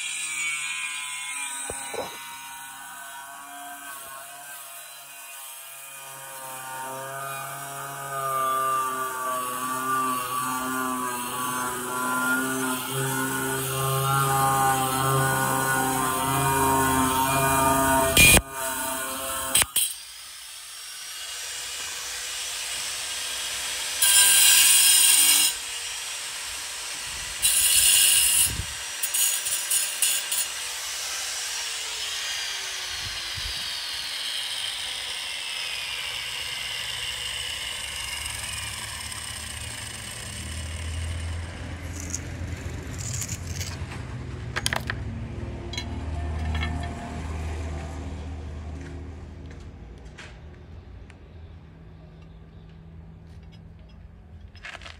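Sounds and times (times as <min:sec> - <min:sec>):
angle grinder cutting tile: 0:00.0 - 0:43.9.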